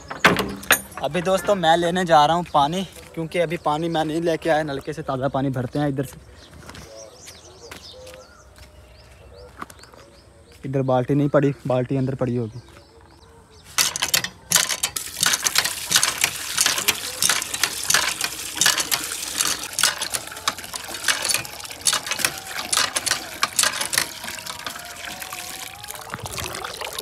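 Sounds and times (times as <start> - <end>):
water splashing into a bucket: 14.5 - 27.0.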